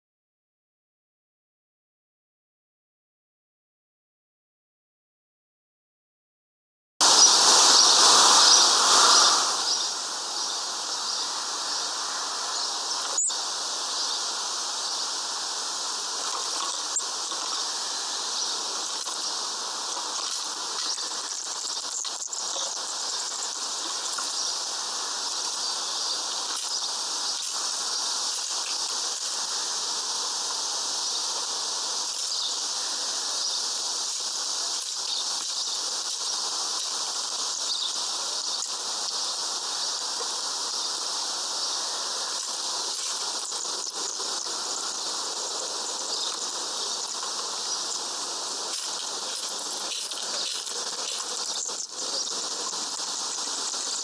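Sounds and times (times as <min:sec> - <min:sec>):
high-pitched outdoor hiss: 0:07.0 - 0:54.0.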